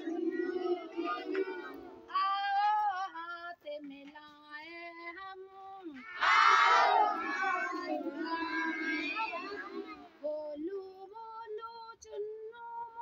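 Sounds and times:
young children singing together: 0.0 - 2.3, 6.0 - 10.6
woman singing: 2.1 - 6.0, 10.2 - 13.0.

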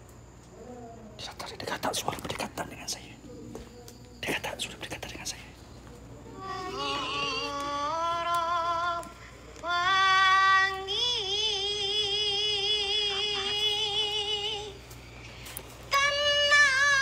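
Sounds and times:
wordless high-pitched singing: 6.3 - 17.0.

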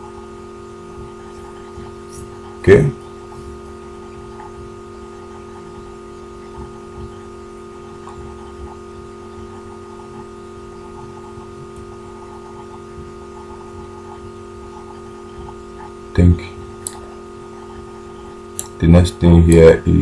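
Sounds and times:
electrical hum: 0.0 - 20.0.

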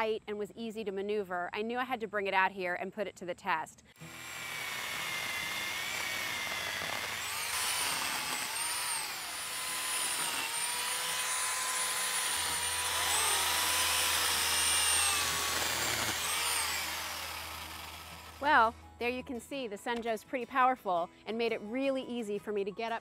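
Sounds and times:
electric chain saw cutting branches: 4.0 - 18.7.

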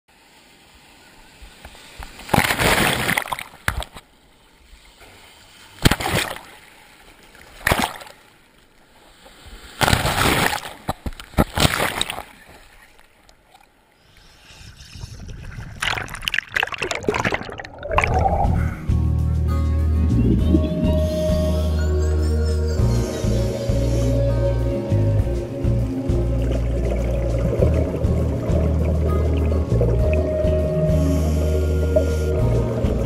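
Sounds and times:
waves splashing: 0.1 - 18.9, 23.1 - 33.0
low underwater rush: 13.9 - 19.2, 20.0 - 21.6, 23.4 - 33.0.

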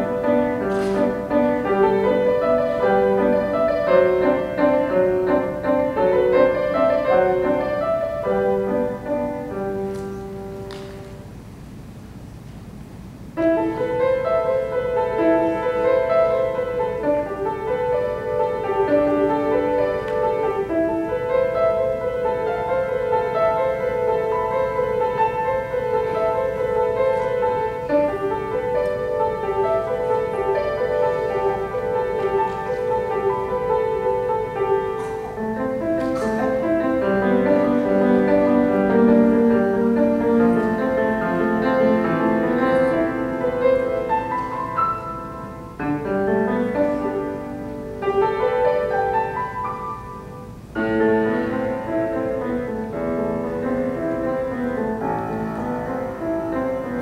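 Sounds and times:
solo piano piece: 0.0 - 57.0.

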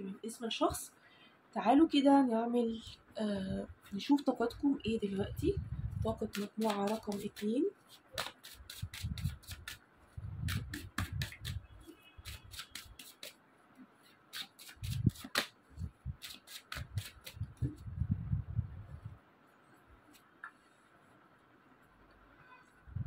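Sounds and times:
cards being shuffled: 6.3 - 9.8, 10.4 - 11.6, 12.2 - 13.4, 14.3 - 15.6, 16.2 - 17.6.

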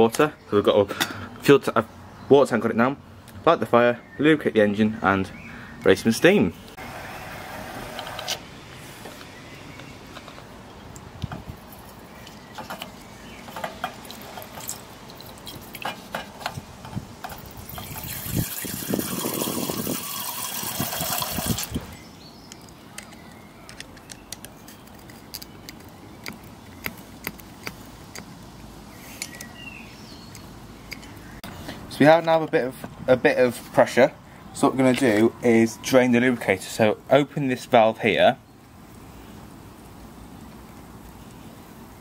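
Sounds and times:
syringe squirting water into tank: 17.6 - 21.8
faint scattered clicks: 39.8 - 41.6.

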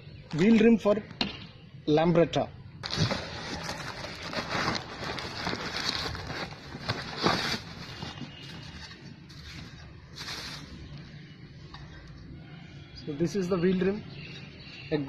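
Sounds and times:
paper and plastic wrapping tearing: 2.8 - 10.7.

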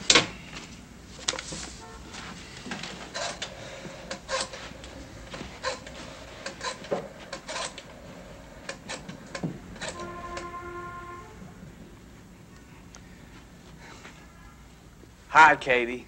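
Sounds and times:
footsteps crossing a room: 0.5 - 7.4, 12.9 - 15.2.

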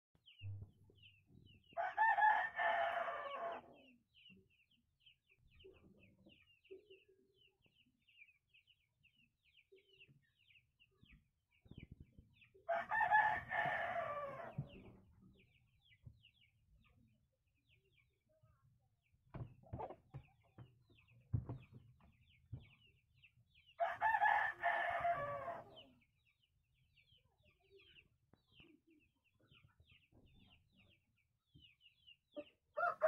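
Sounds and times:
rooster crowing: 1.8 - 3.7, 12.7 - 14.6, 23.8 - 25.6, 32.8 - 33.0.

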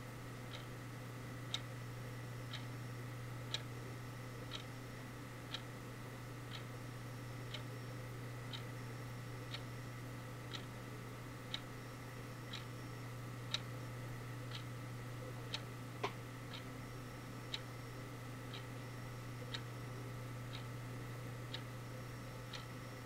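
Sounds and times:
steady low hum: 0.0 - 23.0
clock ticking: 3.5 - 3.7, 10.5 - 10.7.

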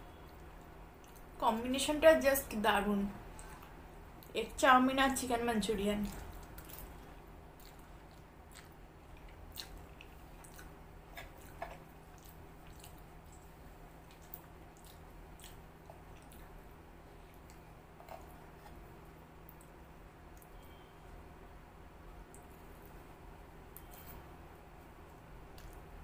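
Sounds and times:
steady low hum: 0.0 - 26.0
person chewing noodles: 6.0 - 20.8, 25.5 - 26.0.

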